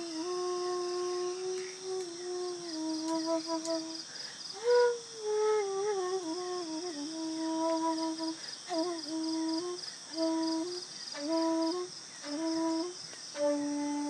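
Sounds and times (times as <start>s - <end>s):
flute playing slow melody: 0.0s - 4.0s, 4.6s - 14.0s
flutist breathing: 4.0s - 4.5s, 8.3s - 8.7s.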